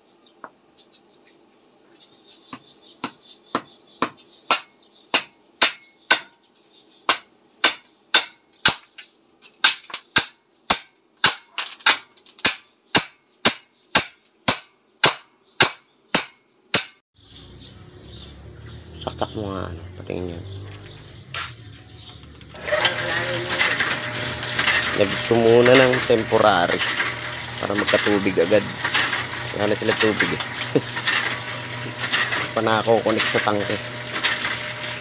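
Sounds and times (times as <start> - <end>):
motor-driven pump clacking: 22.3 - 35.0.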